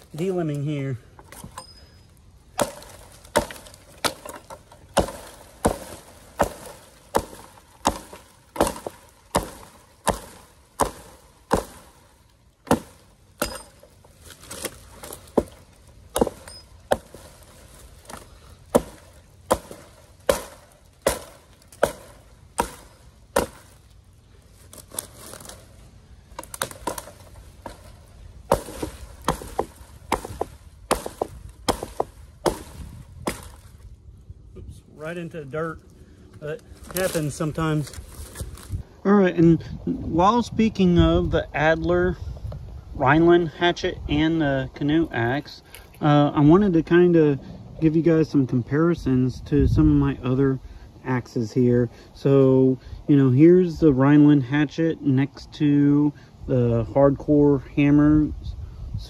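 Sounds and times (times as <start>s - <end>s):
hatchet chopping branches: 0.0s - 1.8s, 2.5s - 33.9s, 36.3s - 38.8s.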